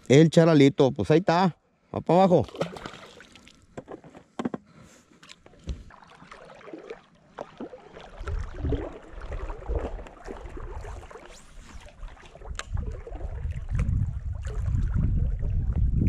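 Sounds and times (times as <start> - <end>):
water lapping at hull: 2.5 - 4.1, 5.0 - 16.0
wind rumble on microphone: 8.2 - 16.0.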